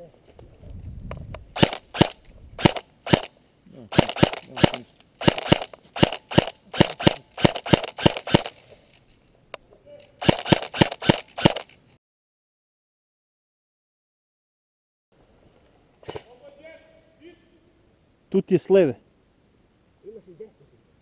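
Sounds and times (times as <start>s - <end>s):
airsoft gun shots: 1.6s - 3.3s, 3.9s - 8.6s, 10.2s - 11.7s.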